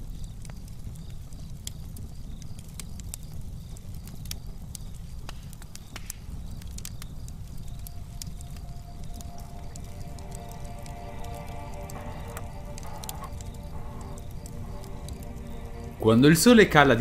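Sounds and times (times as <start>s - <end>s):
sharp crackles and clicks: 0.0s - 17.0s
low rumble: 7.7s - 17.0s.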